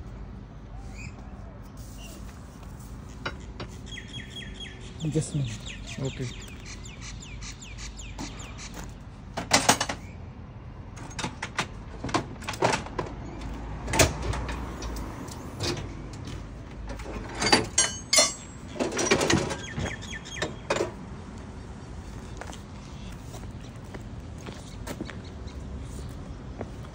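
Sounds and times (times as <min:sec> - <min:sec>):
metal tools clanking and rattling: 0:09.4 - 0:10.0, 0:11.0 - 0:21.0.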